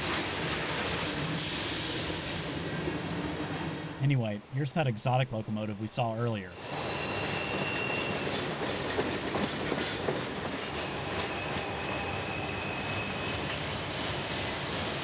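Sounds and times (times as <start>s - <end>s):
freight train rolling past: 0.0s - 4.6s, 6.5s - 15.0s
high wheel squeal: 6.6s - 8.6s, 10.7s - 13.8s
steel wheels clicking on rail: 6.6s - 15.0s.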